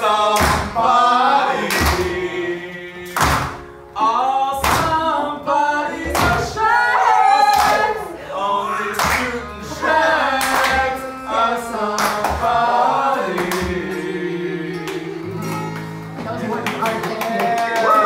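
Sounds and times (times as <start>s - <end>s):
man singing: 0.0s - 6.7s, 8.2s - 10.0s
strummed acoustic guitars: 0.0s - 7.0s, 7.6s - 17.8s.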